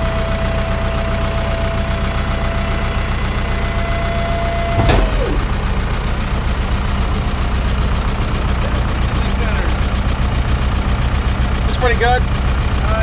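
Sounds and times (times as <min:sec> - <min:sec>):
steady whine: 0:00.0 - 0:13.0
truck engine idling: 0:00.0 - 0:13.0
sharp clunk: 0:04.7 - 0:05.5.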